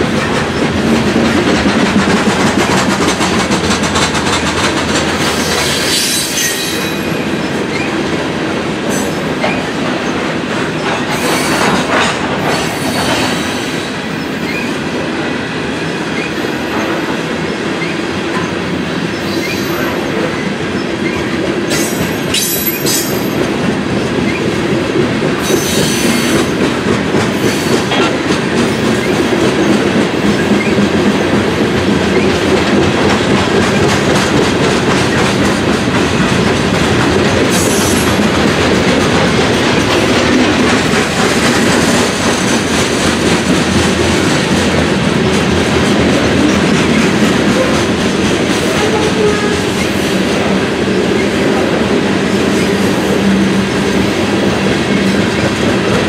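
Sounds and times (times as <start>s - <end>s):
train wheels clacking on rail joints: 0.0s - 14.8s, 15.7s - 56.0s.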